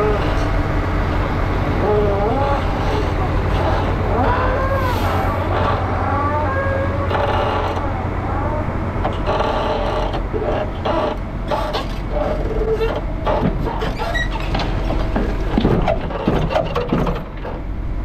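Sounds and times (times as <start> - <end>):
voices: 0.0 - 11.4
engine humming: 0.0 - 18.0.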